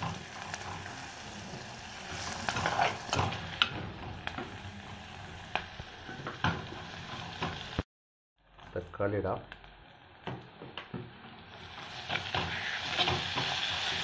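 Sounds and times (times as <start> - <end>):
onions sizzling in oil: 0.0 - 7.9, 9.4 - 14.0.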